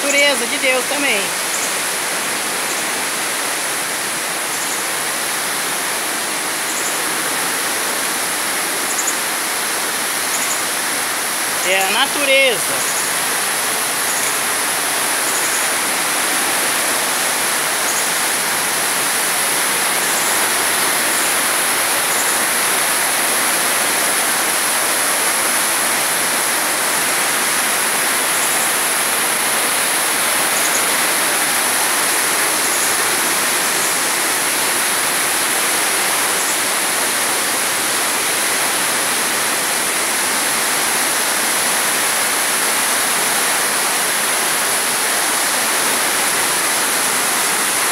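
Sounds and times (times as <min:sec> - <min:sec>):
waterfall rushing: 0:00.0 - 0:47.9.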